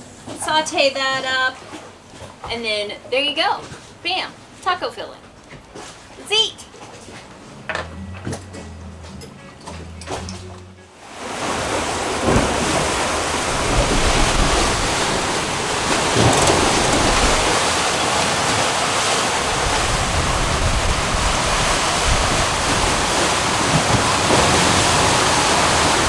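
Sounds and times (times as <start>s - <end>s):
waves rushing: 10.9s - 26.0s
wind buffeting microphone: 12.0s - 26.0s.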